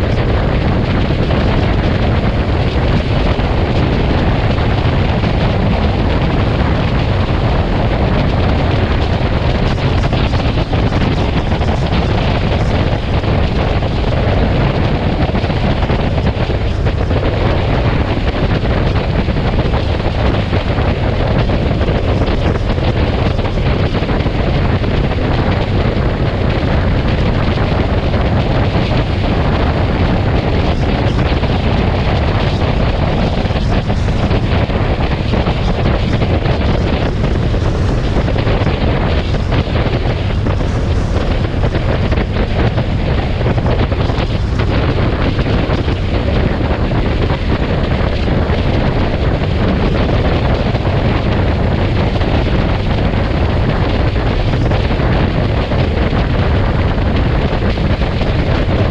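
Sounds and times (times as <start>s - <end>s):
engine and road noise: 0.0s - 58.9s
wind rushing over microphone: 0.0s - 58.9s.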